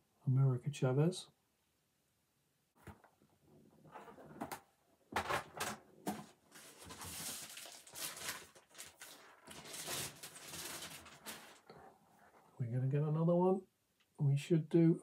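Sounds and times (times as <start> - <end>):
plastic bags rustling: 5.2 - 11.7.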